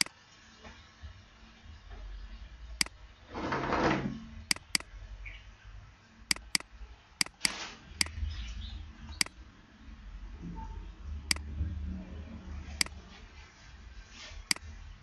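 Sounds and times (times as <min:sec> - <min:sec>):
computer mouse clicks: 0:04.5 - 0:04.9, 0:06.3 - 0:08.2.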